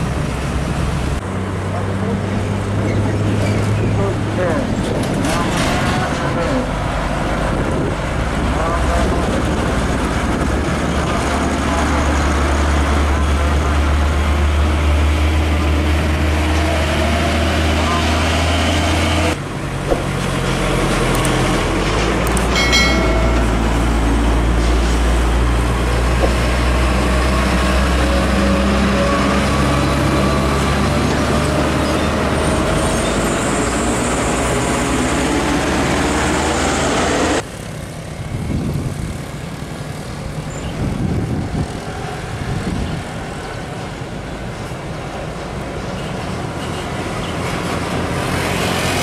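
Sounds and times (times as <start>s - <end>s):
heavy trucks passing: 0.0s - 49.0s.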